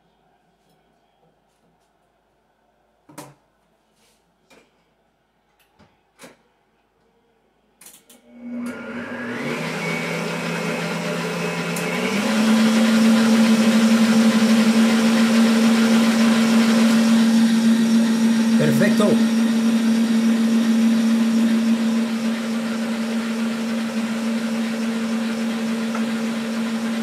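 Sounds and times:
electric stand mixer motor: 0:08.3 - 0:27.0.

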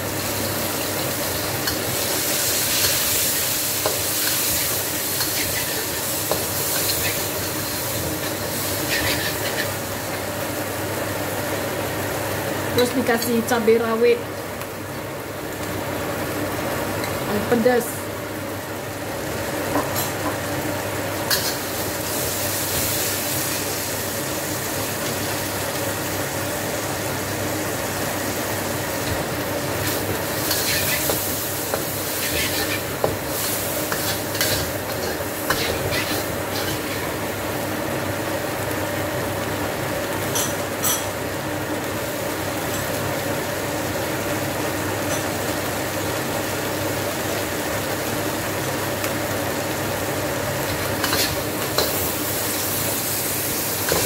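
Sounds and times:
fan humming: 0:00.0 - 0:54.0
food sizzling in a wok: 0:00.0 - 0:54.0
spatula stirring and scraping: 0:02.8 - 0:09.8, 0:29.8 - 0:37.1, 0:50.7 - 0:51.9.

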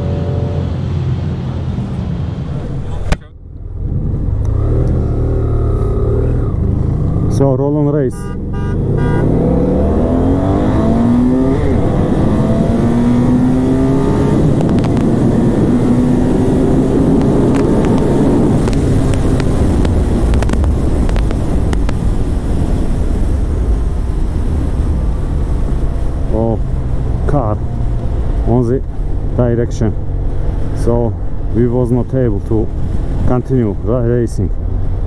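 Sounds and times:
wind rushing over microphone: 0:00.0 - 0:08.0, 0:08.8 - 0:35.0
motorcycle engine accelerating: 0:00.0 - 0:31.6.

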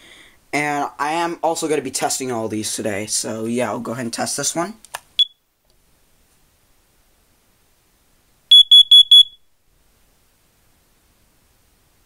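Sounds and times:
high-pitched alarm beeps: 0:08.5 - 0:09.4
alarm chirp: 0:08.5 - 0:09.5.

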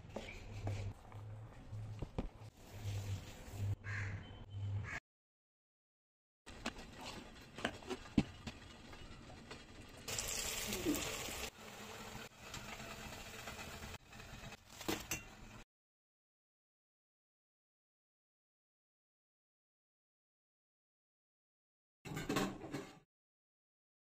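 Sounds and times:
batter sizzling in hot oil: 0:10.1 - 0:14.8.

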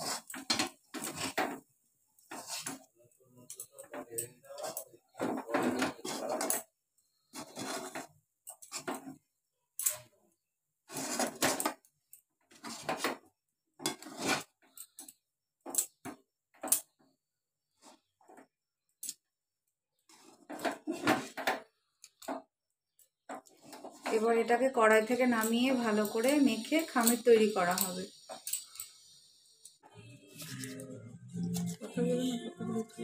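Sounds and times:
metal spatula scraping pan: 0:00.0 - 0:01.6, 0:02.2 - 0:02.9, 0:04.0 - 0:09.2, 0:10.9 - 0:11.7, 0:13.8 - 0:14.9, 0:23.4 - 0:29.6.

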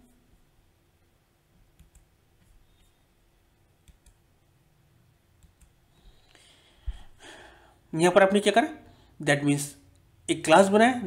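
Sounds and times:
computer mouse clicks: 0:01.7 - 0:02.9, 0:03.8 - 0:04.2, 0:05.4 - 0:05.8.

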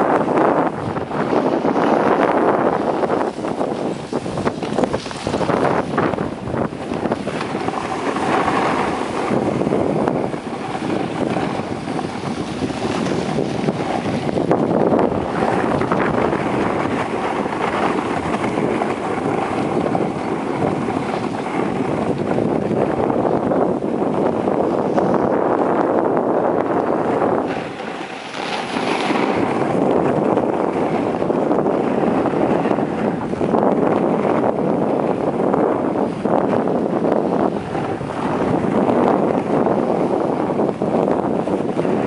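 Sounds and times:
wind rushing over microphone: 0:00.0 - 0:42.0
skis hissing on snow: 0:03.2 - 0:06.0, 0:27.5 - 0:29.7.

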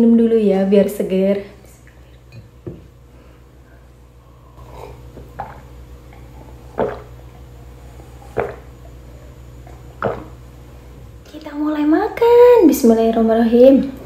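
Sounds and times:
person gulping water: 0:04.5 - 0:10.5.

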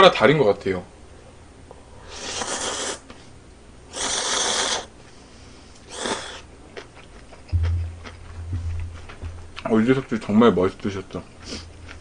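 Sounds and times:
person slurping noodles: 0:02.1 - 0:03.0, 0:03.9 - 0:04.9, 0:05.9 - 0:06.4
low thump: 0:07.5 - 0:09.9.

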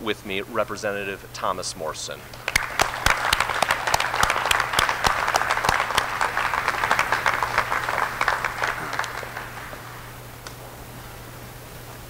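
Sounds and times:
audience applauding: 0:02.3 - 0:10.2
sharp single claps: 0:02.3 - 0:10.6.

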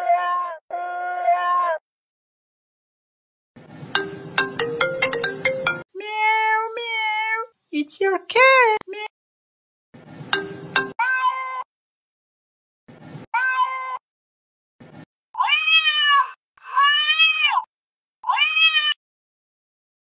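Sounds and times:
cat meowing: 0:00.0 - 0:01.8, 0:06.0 - 0:07.5, 0:11.0 - 0:11.7, 0:13.4 - 0:14.0, 0:15.4 - 0:19.0.

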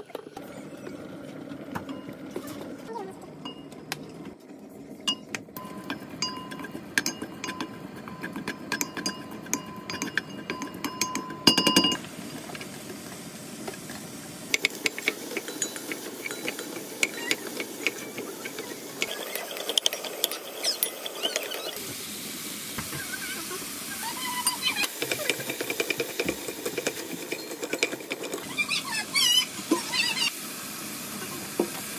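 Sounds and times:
vegetables frying in oil: 0:12.0 - 0:31.9.

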